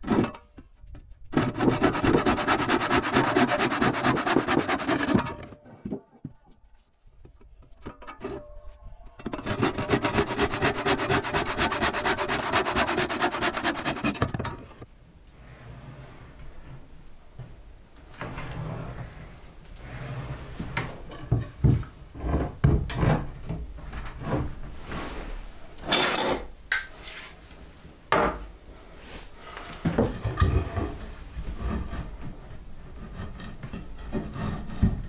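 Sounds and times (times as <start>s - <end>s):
wooden board knocking and scraping: 1.3s - 6.4s, 12.3s - 14.8s
wood rasping slide: 1.4s - 5.4s, 9.3s - 14.4s.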